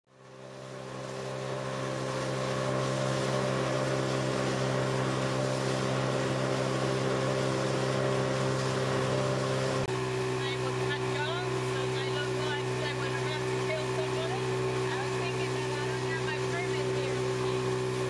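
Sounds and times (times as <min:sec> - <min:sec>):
outboard motor droning: 0:00.1 - 0:18.0
wind and water hiss: 0:00.2 - 0:09.8.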